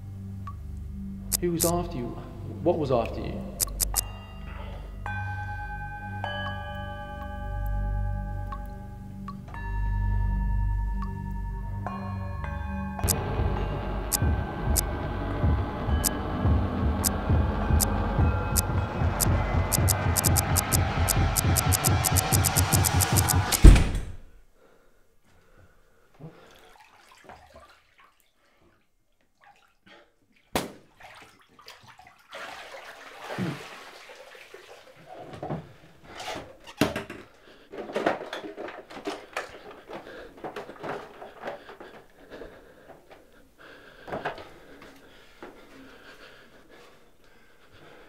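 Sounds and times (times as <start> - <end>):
sharp click: 3.6 - 4.1
music hit: 13.0 - 24.0
water running at a sink: 31.0 - 35.2
knocks and clatters of objects: 35.3 - 43.2.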